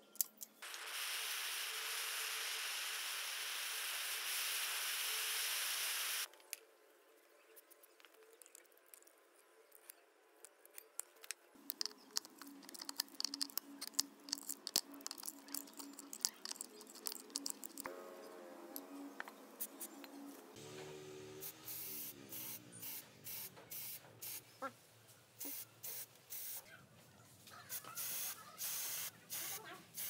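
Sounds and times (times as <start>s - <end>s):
gas torch flame hissing: 0.6s - 6.3s.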